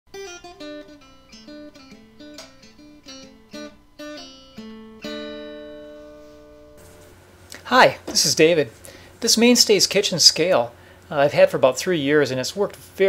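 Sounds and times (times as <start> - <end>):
acoustic guitar picking: 0.1 - 7.2.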